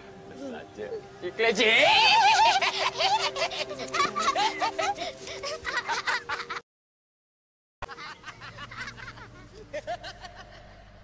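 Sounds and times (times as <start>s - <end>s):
faint children's laughter and voices: 1.8s - 6.5s
children giggling and squealing: 1.8s - 6.6s, 7.8s - 10.8s.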